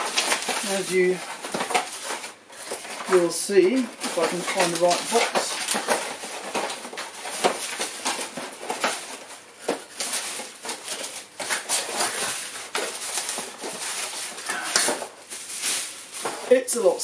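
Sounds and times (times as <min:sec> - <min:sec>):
cardboard rustling and scraping: 0:00.0 - 0:17.0
packing paper crinkling: 0:00.0 - 0:17.0.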